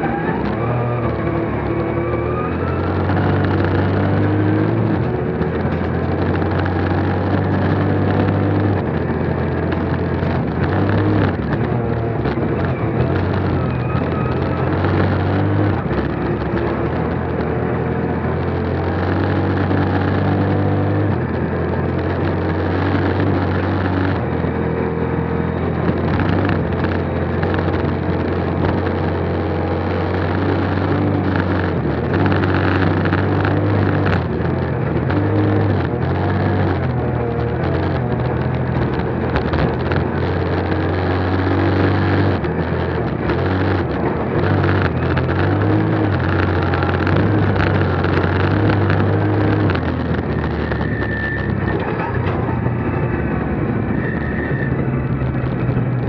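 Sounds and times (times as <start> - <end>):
rally car engine revving: 0.0 - 56.0
tyres rumbling on gravel: 25.5 - 54.0.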